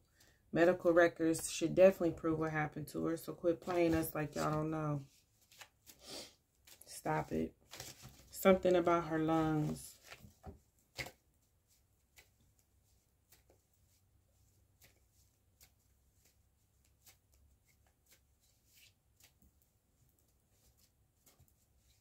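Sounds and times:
cards being shuffled: 0:03.6 - 0:07.0, 0:07.7 - 0:08.4, 0:09.4 - 0:11.2.

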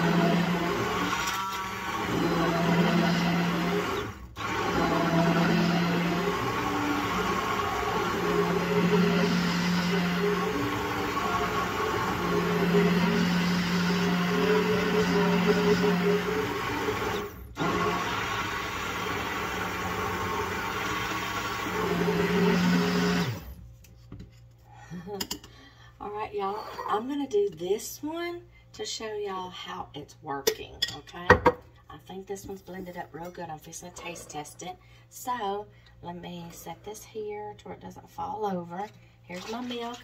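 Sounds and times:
immersion blender motor hum: 0:00.0 - 0:23.6.

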